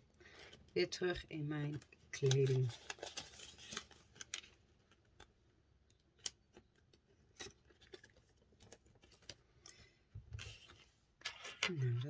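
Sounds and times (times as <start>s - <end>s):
banknotes and plastic rustling: 0.2s - 5.4s.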